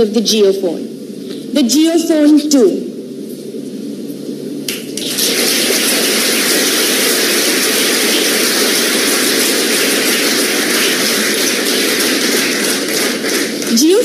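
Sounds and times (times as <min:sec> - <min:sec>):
audience applauding: 0:04.7 - 0:14.0.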